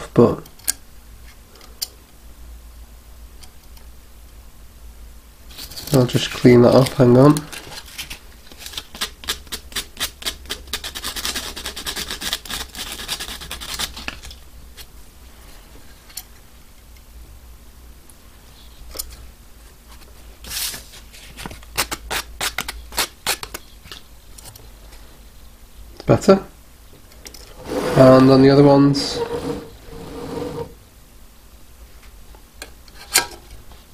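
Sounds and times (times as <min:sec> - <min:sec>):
sandpaper scratching plastic: 0:08.1 - 0:14.1.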